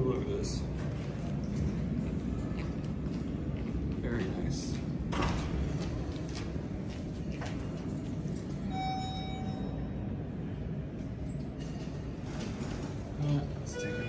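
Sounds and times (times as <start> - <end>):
elevator chime: 8.6 - 10.2, 13.6 - 14.0.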